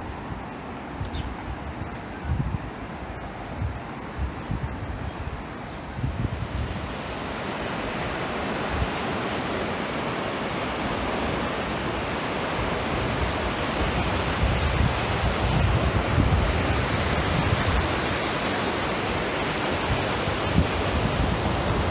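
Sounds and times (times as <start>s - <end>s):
river rushing over rapids: 0.0s - 21.9s
wind buffeting microphone: 1.0s - 7.4s, 12.0s - 21.9s.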